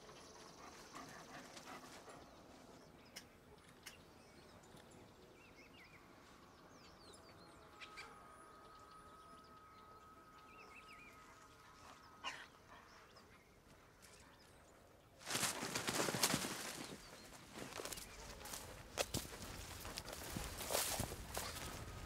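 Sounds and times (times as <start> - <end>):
birds chirping: 0.0 - 22.0.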